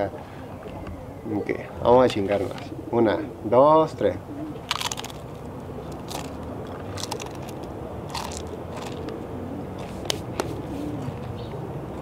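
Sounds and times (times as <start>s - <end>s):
person crunching chip: 4.7s - 9.2s.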